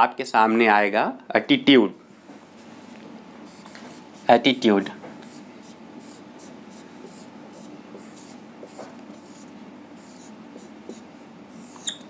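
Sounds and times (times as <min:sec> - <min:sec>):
marker scratching on whiteboard: 0:03.5 - 0:04.5, 0:05.2 - 0:12.0.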